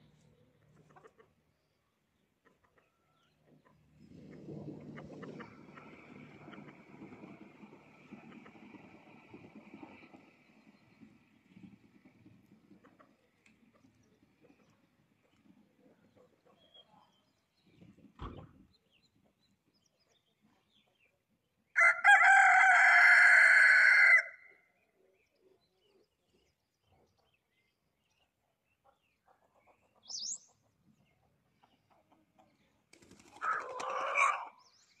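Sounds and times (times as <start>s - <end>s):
rooster crowing: 21.8s - 24.4s
bird wings flurry taking off: 32.9s - 33.9s.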